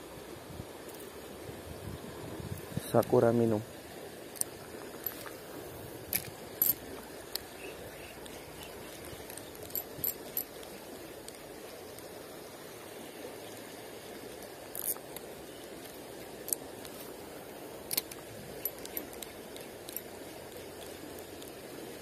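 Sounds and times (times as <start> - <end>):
shallow river flowing: 0.0 - 22.0
fishing reel clicks: 6.1 - 11.4, 14.7 - 15.2, 17.9 - 21.6.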